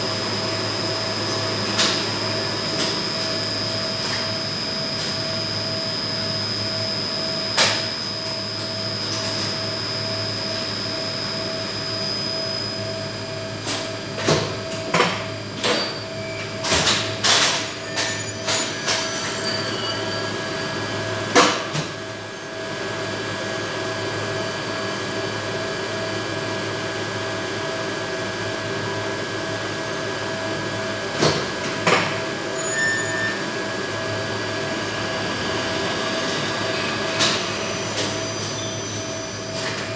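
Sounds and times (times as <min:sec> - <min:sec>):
lift hoist machine humming: 0:00.0 - 0:23.2, 0:32.4 - 0:39.9.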